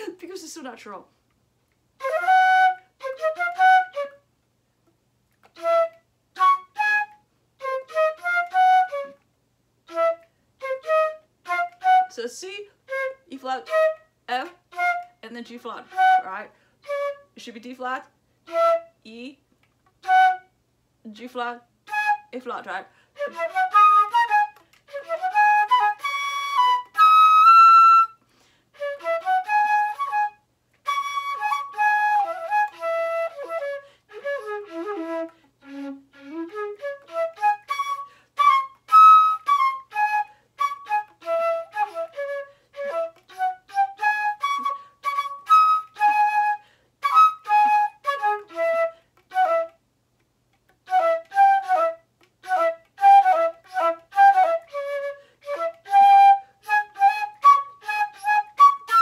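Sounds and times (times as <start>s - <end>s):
solo flute playing quick runs: 28.8s - 49.8s, 50.8s - 59.0s.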